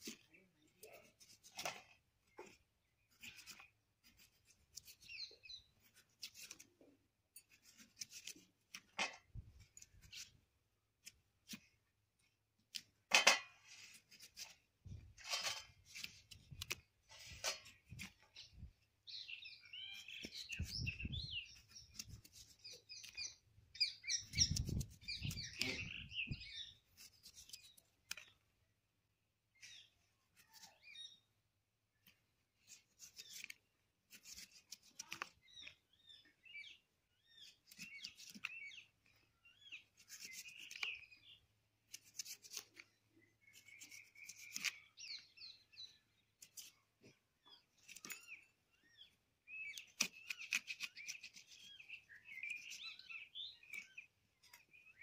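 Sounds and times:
knife slicing and scraping rind: 0.0 - 10.4, 12.6 - 28.4, 32.6 - 35.8, 36.7 - 38.9, 39.5 - 46.9, 47.5 - 55.0
birds chirping: 14.9 - 28.5, 29.5 - 55.0.

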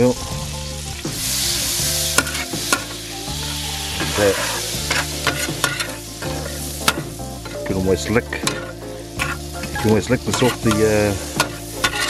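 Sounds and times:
butter and oil sizzling: 0.0 - 12.0
metal tongs clicking and scraping: 4.5 - 7.8, 8.4 - 12.0.

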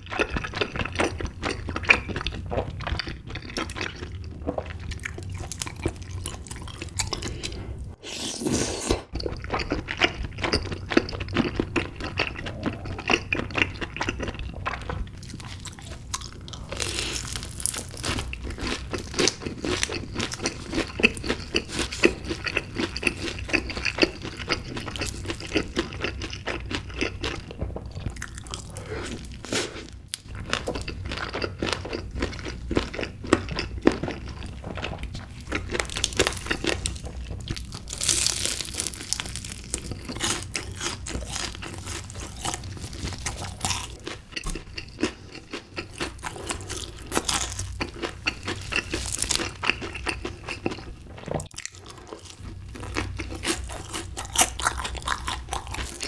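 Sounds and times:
wet chewing: 0.0 - 56.0
crunchy bites: 35.5 - 45.1, 46.0 - 50.8.

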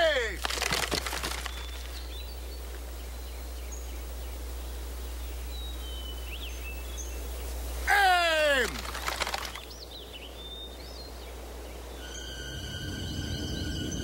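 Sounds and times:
faint hiss: 0.0 - 14.0
steady low hum: 1.3 - 14.0
high bird chirps: 9.5 - 14.0.

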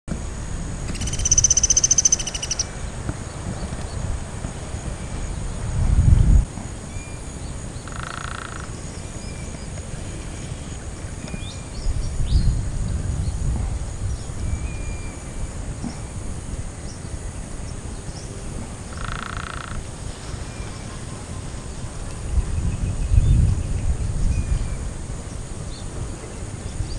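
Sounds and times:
faint bird chirps: 0.9 - 2.7
woodpecker rattles: 0.9 - 2.7, 7.9 - 8.7, 18.9 - 19.8.

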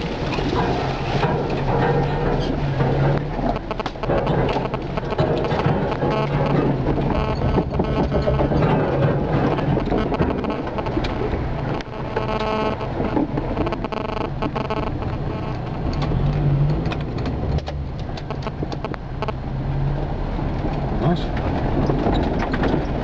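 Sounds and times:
vehicle body knocking and rattling: 0.0 - 12.0, 12.9 - 23.0
vehicle engine running: 0.0 - 23.0
held tone with overtones: 3.5 - 16.2, 18.3 - 19.4.

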